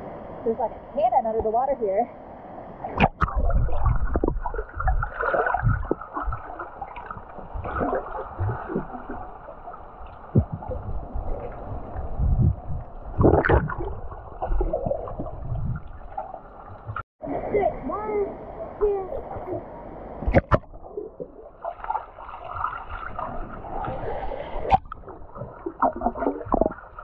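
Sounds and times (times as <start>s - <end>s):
water gurgling underwater: 2.9s - 17.5s, 20.2s - 27.0s
low thuds: 3.0s - 6.5s, 10.2s - 16.1s.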